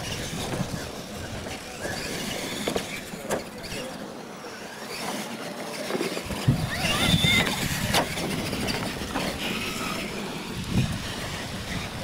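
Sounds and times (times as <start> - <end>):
electric motors whining: 0.0 - 12.0.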